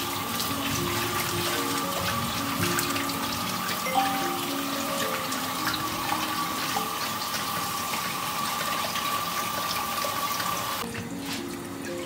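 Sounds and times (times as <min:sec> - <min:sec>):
hands rinsing fruit in water: 0:00.0 - 0:12.0.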